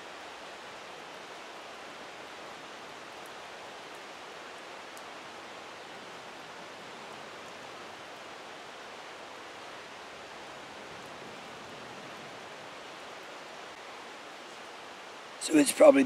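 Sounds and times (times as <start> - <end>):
creek rushing: 0.0 - 16.0
faint ticks: 3.2 - 5.1.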